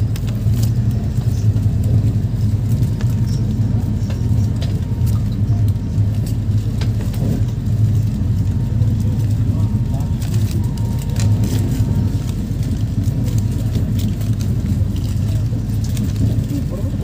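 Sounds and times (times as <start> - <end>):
train rumble from inside: 0.0 - 17.0.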